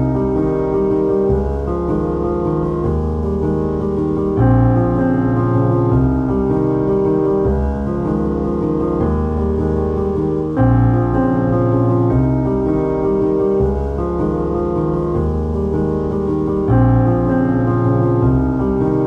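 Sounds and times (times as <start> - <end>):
piano chords: 0.0 - 19.0.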